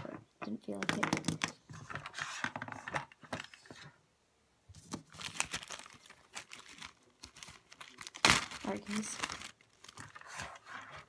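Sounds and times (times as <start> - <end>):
plastic bags crinkling: 5.0 - 10.7.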